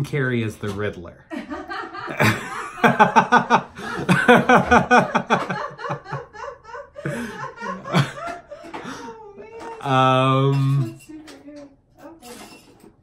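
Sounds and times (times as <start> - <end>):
hearty laughter: 1.3 - 9.2.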